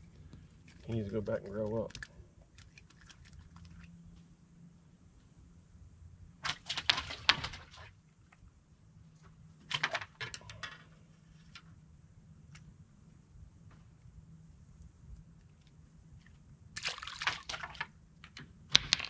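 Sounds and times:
faint low hum: 0.0 - 19.0
fishing tackle clicks and rattles: 0.6 - 3.8.

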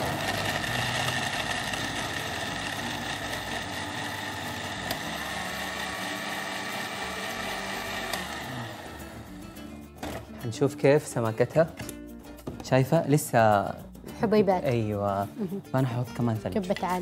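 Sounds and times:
blender motor churning ice: 0.0 - 9.6.

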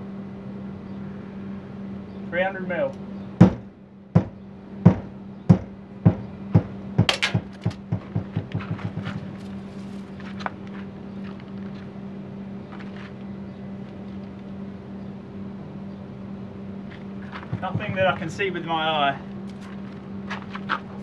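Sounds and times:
hammer knocking on wall panel: 3.4 - 9.2, 17.5 - 18.2.

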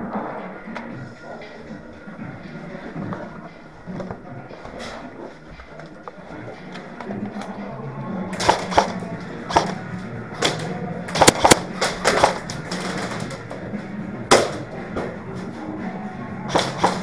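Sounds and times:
background music: 0.0 - 17.0
airsoft guns firing: 8.3 - 9.8, 10.4 - 13.4, 14.3 - 14.7, 16.5 - 17.0.

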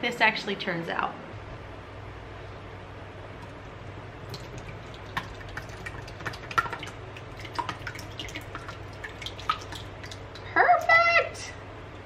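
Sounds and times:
low steady hum: 0.0 - 12.0
wet plops of pouring yogurt: 4.2 - 10.5.

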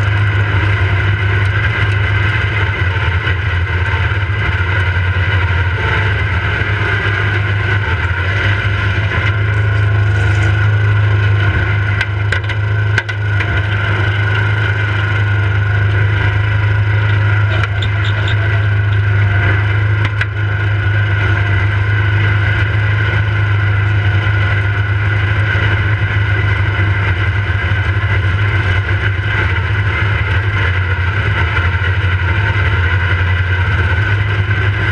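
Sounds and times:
riding lawnmower engine: 0.0 - 34.9
branches scraping and snapping: 9.3 - 10.7.

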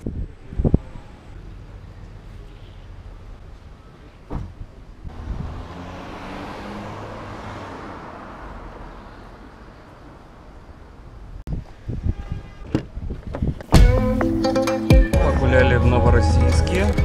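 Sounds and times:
car driving past: 5.1 - 10.4.

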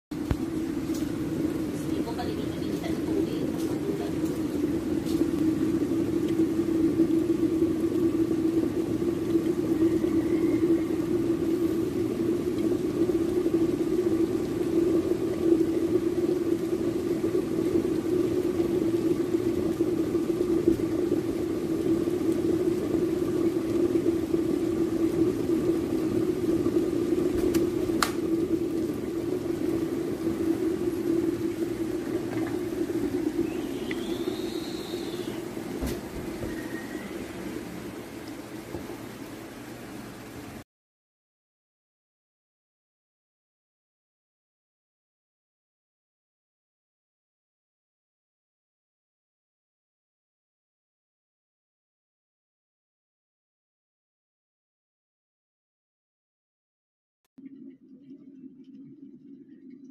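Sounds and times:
water boiling in electric kettle: 0.1 - 40.6.

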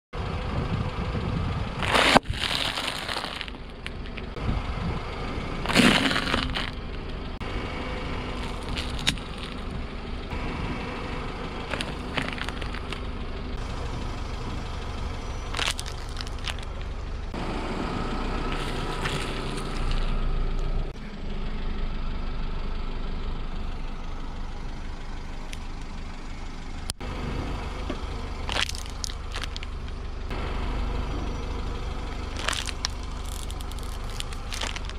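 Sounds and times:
car engine idling: 0.2 - 34.9
tyre crushing plastic packets: 1.8 - 4.2, 5.6 - 6.8, 8.4 - 9.6, 11.7 - 13.0, 15.5 - 16.9, 18.5 - 20.1, 28.5 - 29.7, 32.2 - 34.9.

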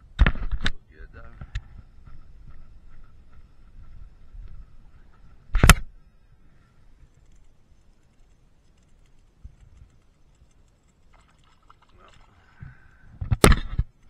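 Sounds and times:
water noise: 7.0 - 14.0.

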